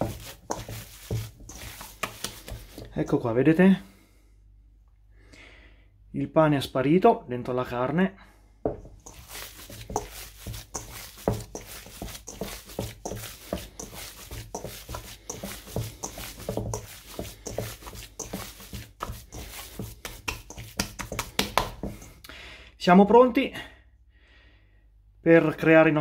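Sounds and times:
hands squelching ground meat: 0.0 - 3.0, 8.8 - 22.2.

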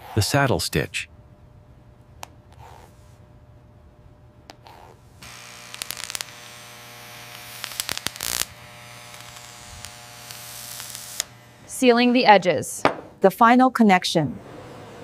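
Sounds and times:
small electric motor buzzing: 4.6 - 11.8.

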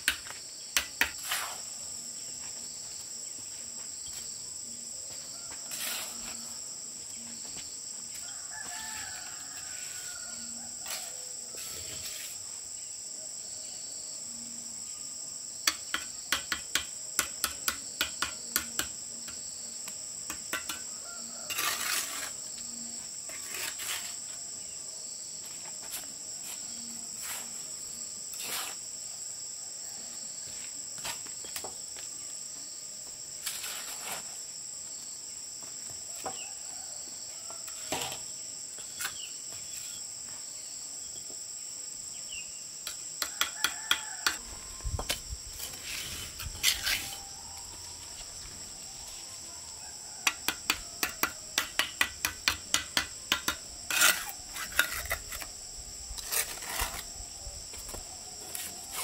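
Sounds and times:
insects droning: 0.0 - 59.0
rooster crowing: 8.2 - 11.6, 20.9 - 21.8, 43.2 - 45.2, 46.6 - 51.5
trowel tapping on bricks: 15.7 - 19.0, 20.3 - 20.9, 42.9 - 44.4, 50.2 - 55.4.

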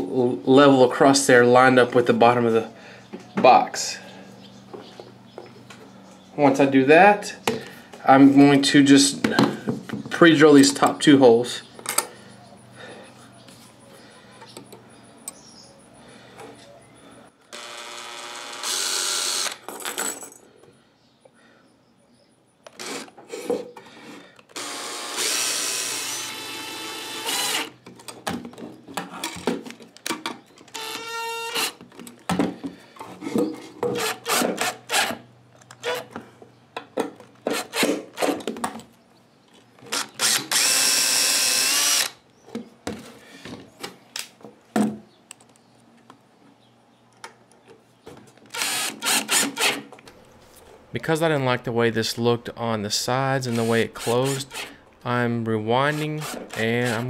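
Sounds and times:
cordless drill motor whining: 17.5 - 19.6, 24.5 - 27.8, 30.7 - 31.8, 39.9 - 42.2, 48.5 - 49.8.

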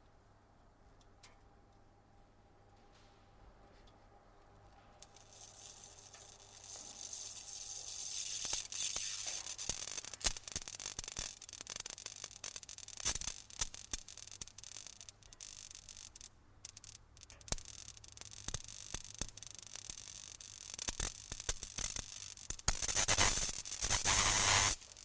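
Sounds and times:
bug zapper crackling: 5.0 - 25.0.

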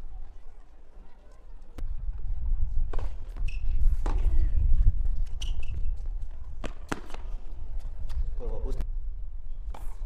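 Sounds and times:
shoe squeaks: 3.4 - 3.8, 5.3 - 6.0.

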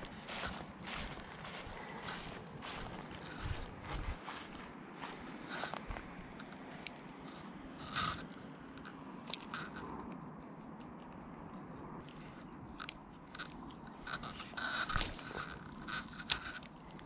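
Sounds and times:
fishing line reeling in rustle: 12.0 - 17.0.

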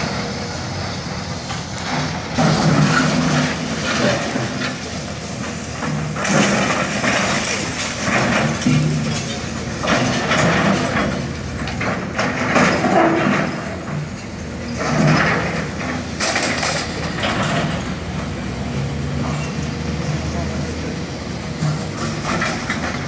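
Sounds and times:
excavator diesel engine running: 0.0 - 23.0
rubble crashing and scraping: 1.9 - 18.1, 21.5 - 23.0.

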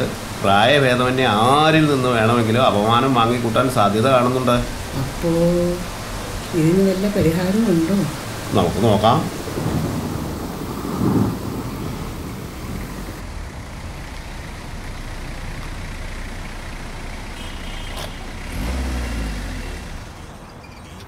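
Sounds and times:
thunder rumbling: 0.0 - 13.4
car engine running: 0.0 - 20.4.

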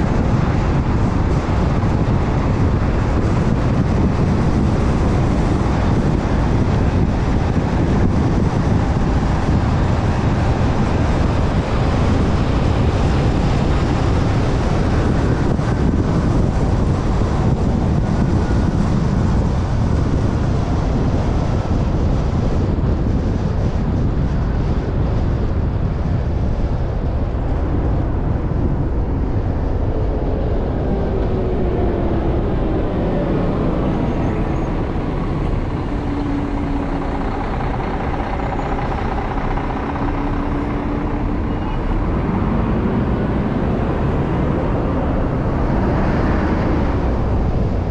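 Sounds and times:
wind noise: 0.0 - 47.9
faint engine tone: 30.3 - 45.7.

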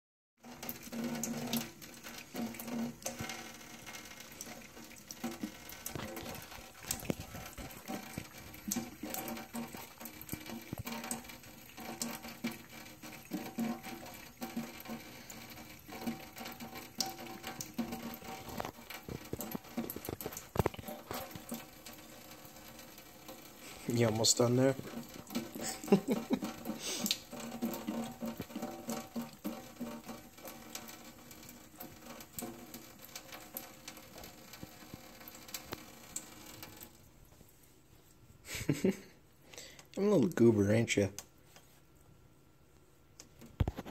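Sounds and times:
cat lapping water: 0.4 - 36.3
water trickling into a sink: 0.4 - 37.4.

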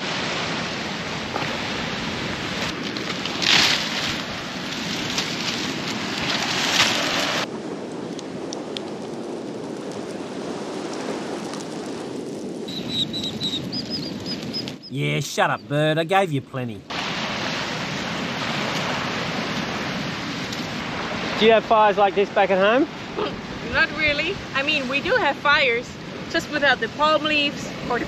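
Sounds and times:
wind and surf hiss: 0.0 - 12.7, 15.1 - 28.0
dry palm fronds rustling on sand: 1.4 - 7.5.

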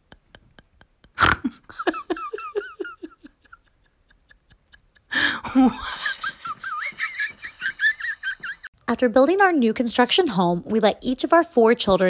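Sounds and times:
person laughing: 0.0 - 8.7.

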